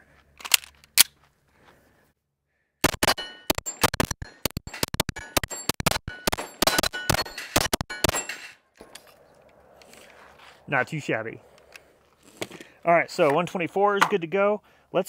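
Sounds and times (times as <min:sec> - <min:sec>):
pistol loading click: 0:00.4 - 0:01.1
rapid pistol fire: 0:02.8 - 0:04.1.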